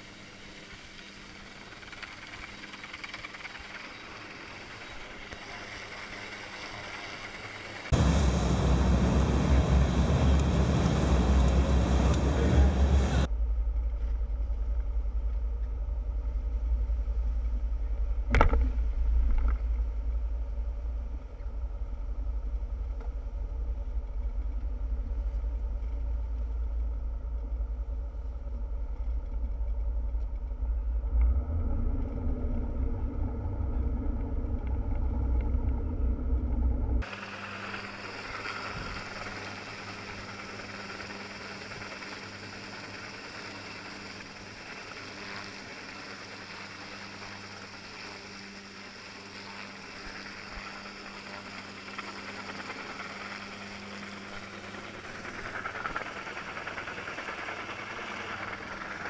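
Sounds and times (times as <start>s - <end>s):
wind: 0.0s - 59.0s
boat engine running: 0.7s - 13.3s, 30.6s - 48.1s.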